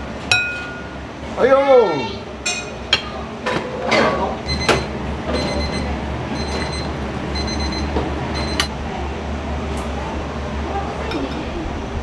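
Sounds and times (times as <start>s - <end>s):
low hum of kitchen equipment: 0.0s - 12.0s
dishes clinking: 0.3s - 1.0s, 2.4s - 5.8s
electronic timer beeping: 4.5s - 8.7s.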